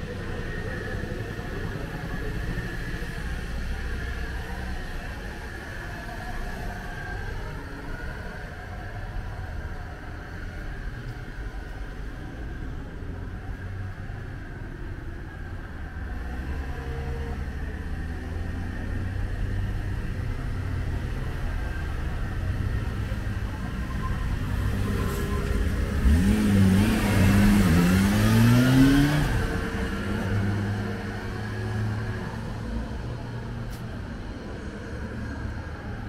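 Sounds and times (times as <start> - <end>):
low traffic rumble: 0.0 - 36.0
car accelerating: 16.1 - 34.3.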